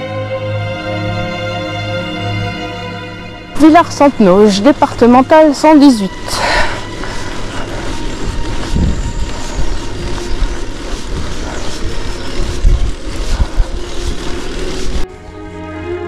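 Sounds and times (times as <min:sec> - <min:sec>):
string music: 0:00.0 - 0:16.0
wind buffeting microphone: 0:03.7 - 0:15.4.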